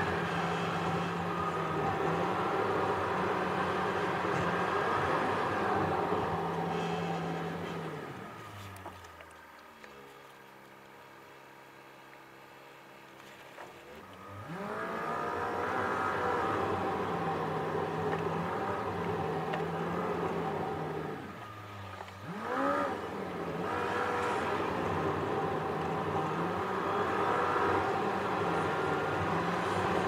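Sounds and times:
car engine: 0.0s - 11.3s, 12.9s - 30.0s
road noise inside car: 0.0s - 30.0s.

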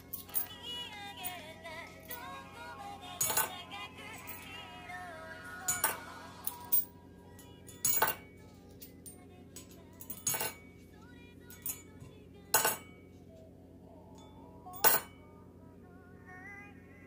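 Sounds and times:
coins clinking into ceramic bank: 0.0s - 2.3s, 3.2s - 4.6s, 5.7s - 10.8s, 11.5s - 13.1s, 14.2s - 15.2s.

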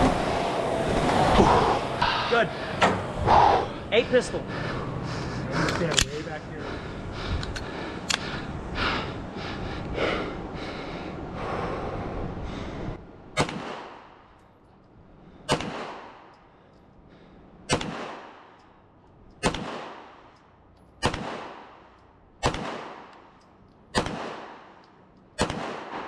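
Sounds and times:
heavy rapid breathing: 1.2s - 13.3s, 15.0s - 18.5s
magazine clicking into pistol: 5.7s - 6.2s
pistol shots with echo: 13.4s - 14.2s, 15.5s - 16.3s, 17.7s - 18.6s, 19.4s - 20.3s, 21.0s - 24.8s, 25.4s - 26.0s.

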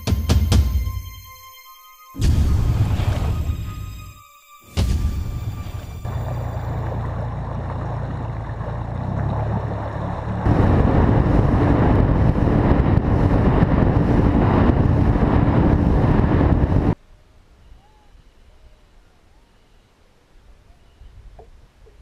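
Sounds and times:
water rushing past hull: 2.2s - 4.2s, 4.8s - 17.0s
wind on microphone: 5.4s - 17.0s
outboard motor running: 5.7s - 16.8s.

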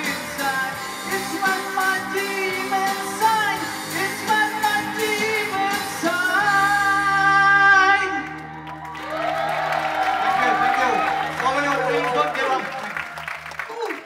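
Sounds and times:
man singing lead vocals: 0.0s - 8.4s
live pop-rock band: 0.0s - 12.3s.

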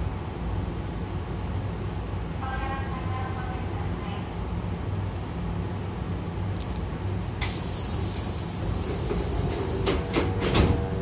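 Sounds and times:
train low hum: 0.0s - 11.0s
compressed air hissing: 7.4s - 10.4s
train doors knocking shut: 8.8s - 11.0s.

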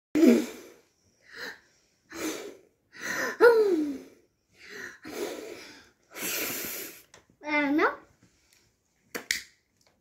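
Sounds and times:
girl blowing at candle: 0.2s - 7.1s
girl's voice: 7.4s - 8.1s.

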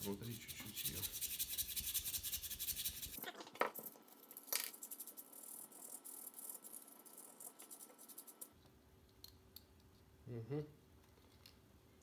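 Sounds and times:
sandpaper rubbing: 0.0s - 3.2s.

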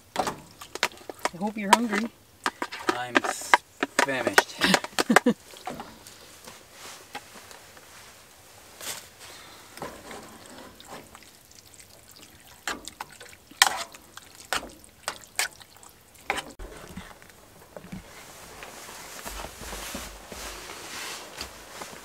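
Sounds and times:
utensil stirring wet food: 0.0s - 6.3s, 9.7s - 18.8s.

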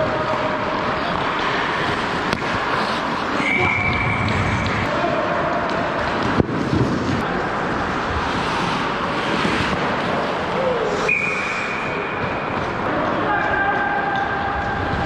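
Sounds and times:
skates scraping ice: 0.0s - 15.0s
stick hitting puck: 2.2s - 6.8s
wind noise on microphone: 6.2s - 7.3s.

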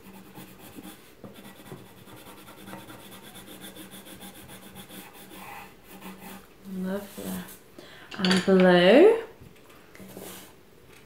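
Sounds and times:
colouring pencil rubbing on paper: 0.0s - 7.6s.

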